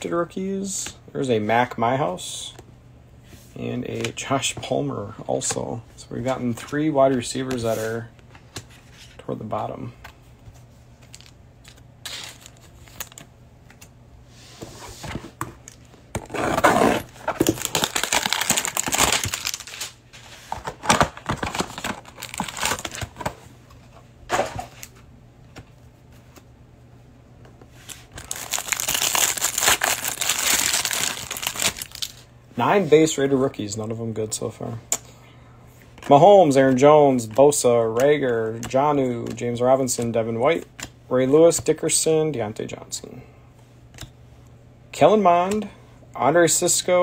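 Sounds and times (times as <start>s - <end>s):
cellophane crinkling and tearing: 16.6s - 20.0s, 20.6s - 23.3s, 28.0s - 32.3s.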